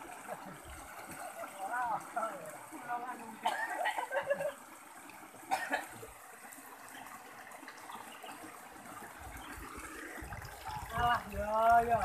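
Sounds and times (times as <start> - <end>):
stream trickling over stones: 0.0 - 12.0.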